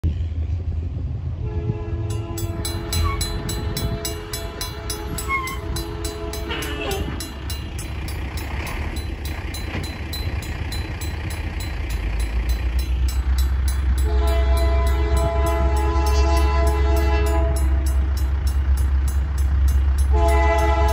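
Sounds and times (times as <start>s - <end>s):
low train rumble: 0.0s - 20.9s
train horn chord: 1.4s - 7.2s, 14.0s - 18.1s, 20.0s - 20.9s
crossing bell ringing: 2.0s - 20.9s.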